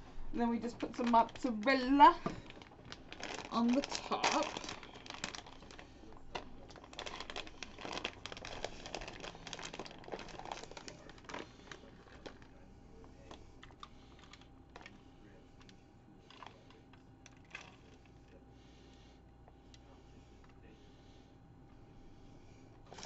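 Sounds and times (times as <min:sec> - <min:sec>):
plastic bag crinkling: 0:00.8 - 0:15.0.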